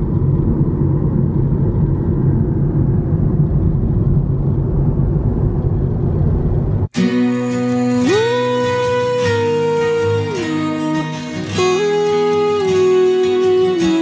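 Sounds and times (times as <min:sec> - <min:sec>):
car cabin road and engine rumble: 0:00.0 - 0:07.0.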